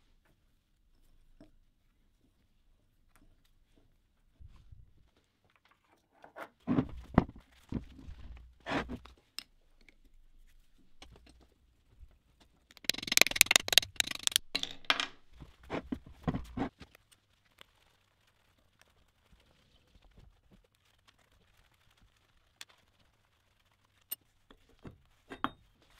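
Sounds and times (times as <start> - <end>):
metal tools knocking and clicking: 12.8 - 15.2.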